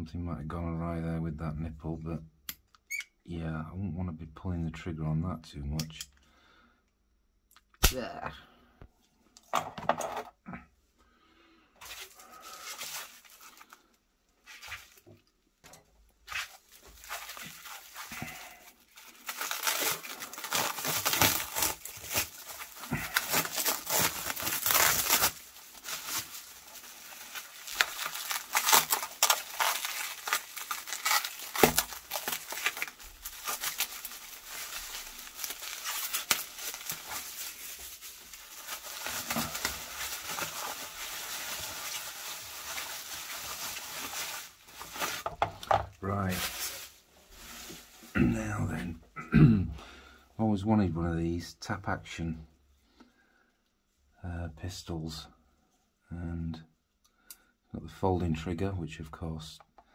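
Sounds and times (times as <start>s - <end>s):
bubble wrap crinkling: 11.8s - 15.4s, 16.2s - 48.8s.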